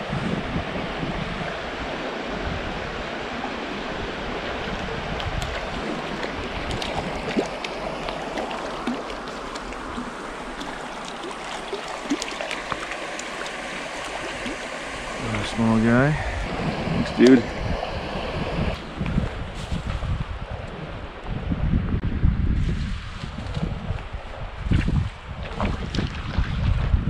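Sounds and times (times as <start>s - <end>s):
stream rippling over rocks: 0.4s - 17.4s
sharp water splashes: 5.1s - 15.8s.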